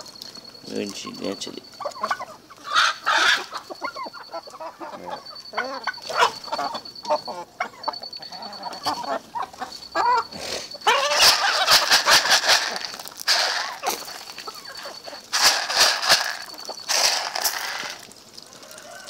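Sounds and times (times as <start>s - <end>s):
chickens clucking and squawking: 1.0s - 19.0s
rough crackling rush of noise: 11.2s - 18.3s.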